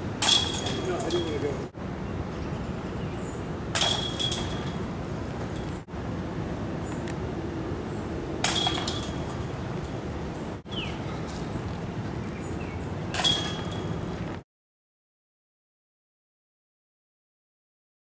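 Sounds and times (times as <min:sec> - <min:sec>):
metallic chain rattle: 0:00.2 - 0:01.7, 0:03.8 - 0:05.8, 0:08.4 - 0:10.6, 0:13.1 - 0:14.4.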